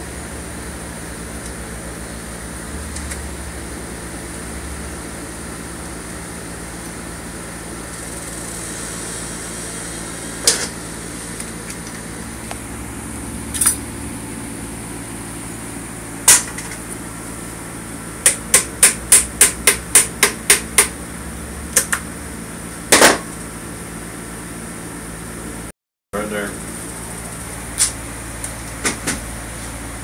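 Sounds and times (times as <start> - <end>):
steady hum: 0.0 - 30.0
hammer tapping on metal: 18.2 - 21.0.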